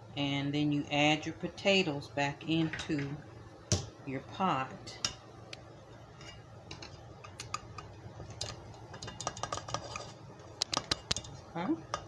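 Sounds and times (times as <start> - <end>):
strainer knocking pot rim: 6.7 - 12.0.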